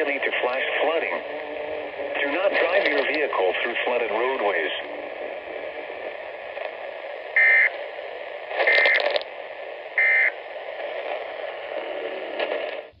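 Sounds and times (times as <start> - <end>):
radio static hiss: 0.0 - 13.0
short electronic beeps: 10.0 - 10.3.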